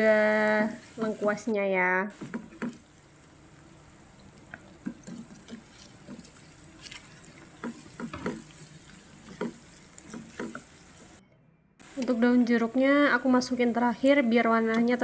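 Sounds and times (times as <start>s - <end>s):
food sizzling in a pan: 0.0s - 11.2s, 11.8s - 15.0s
spatula knocking and scraping pan: 2.1s - 2.9s, 4.4s - 11.2s.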